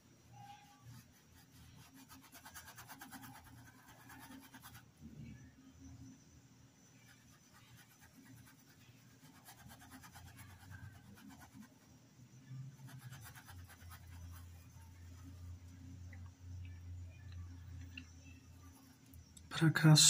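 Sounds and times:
low steady hum: 0.0 - 20.0
paintbrush scratching on fabric: 0.4 - 4.9, 7.0 - 11.8, 12.7 - 15.6.

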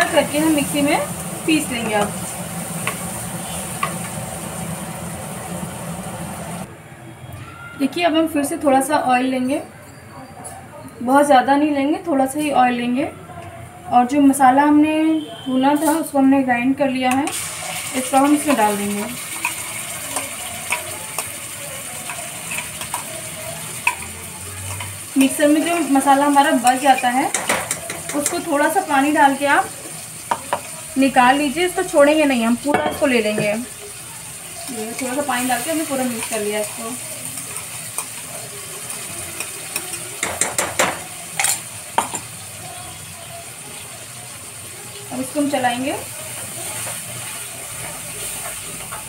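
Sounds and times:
paste sizzling in hot oil: 0.0 - 6.7, 17.3 - 49.0.

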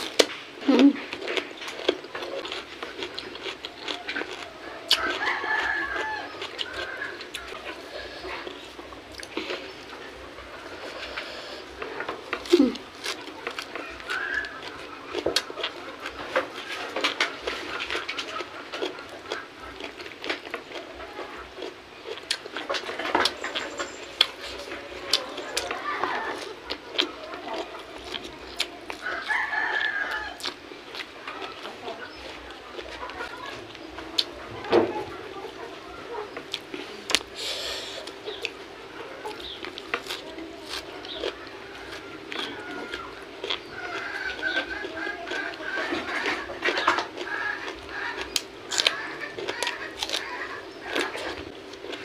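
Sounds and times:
chewing and mouth smacks: 1.0 - 10.0, 10.8 - 20.9, 21.6 - 34.4, 36.4 - 38.6, 39.3 - 52.0
fingers gathering rice and leaves: 39.2 - 52.0.

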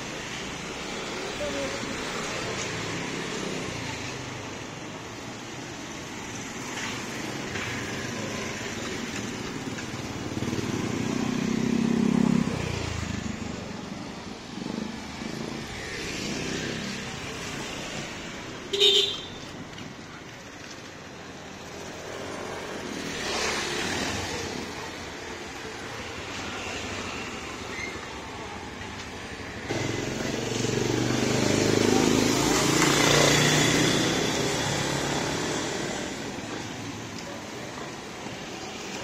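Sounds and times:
motorcycles passing close by: 6.1 - 19.2, 21.6 - 39.0.

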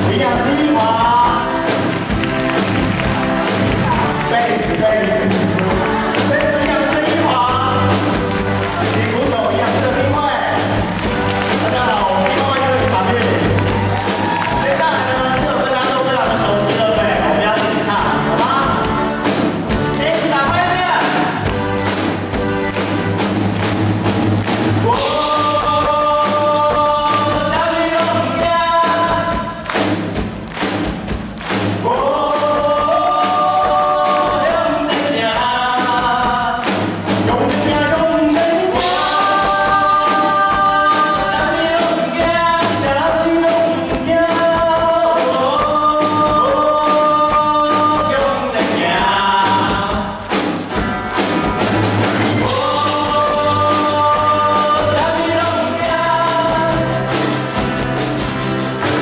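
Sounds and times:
drum kit beat: 0.0 - 59.0
guitar bass and keyboard: 50.6 - 59.0.

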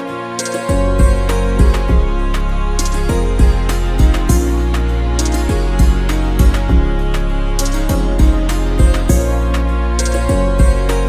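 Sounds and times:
background music with beat: 0.0 - 11.0.

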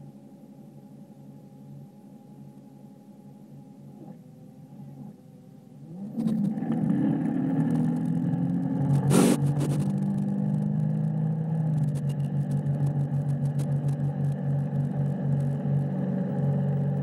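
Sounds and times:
boat engine revving to full throttle: 5.8 - 17.0
loud rush of noise: 8.9 - 10.0.

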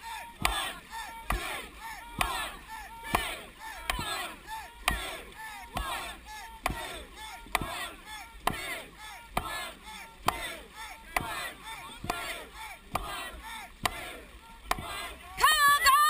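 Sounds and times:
paddle knocking on boat: 0.4 - 10.5, 11.1 - 12.3, 12.9 - 13.2, 14.7 - 15.0.

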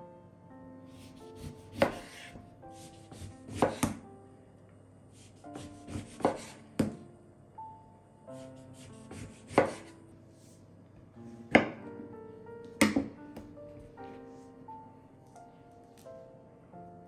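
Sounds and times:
knife cutting on cutting board: 1.0 - 4.0, 5.5 - 6.6, 8.8 - 9.9
soft music with plucked notes: 8.4 - 17.0.

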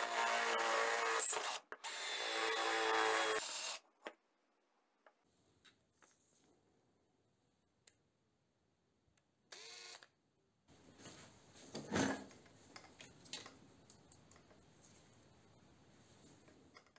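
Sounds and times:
rustling and handling noise: 5.2 - 6.7, 10.7 - 16.9
power tool whirring: 9.5 - 10.1.

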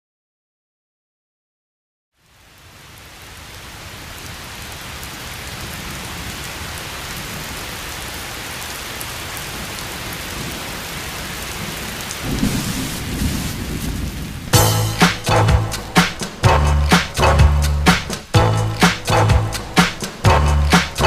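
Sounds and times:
steady rain falling: 2.2 - 21.0
low rumble of thunder: 10.3 - 14.7.

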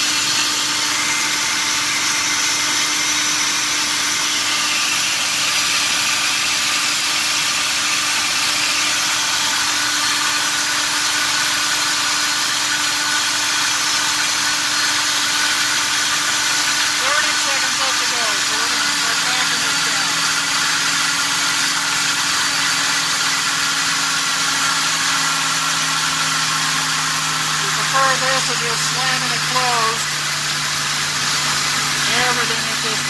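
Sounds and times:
engine at fast idle: 0.0 - 33.0.

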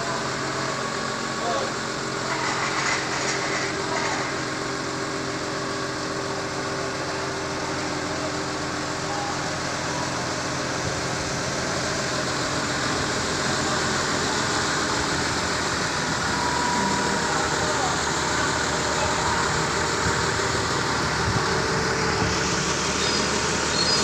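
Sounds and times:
forklift diesel engine running: 0.0 - 24.0.

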